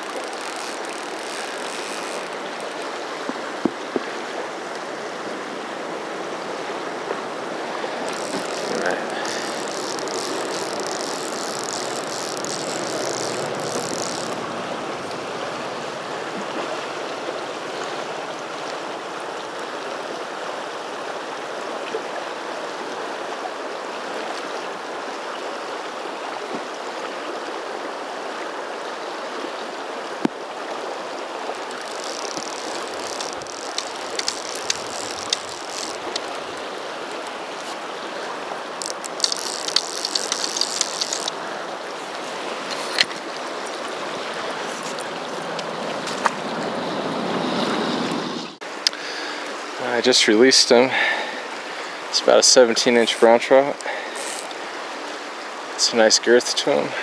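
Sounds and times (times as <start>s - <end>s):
sharp clicks: 0.0s - 3.0s, 8.1s - 15.2s, 31.5s - 37.8s, 38.8s - 41.4s
river water rushing: 0.0s - 57.0s.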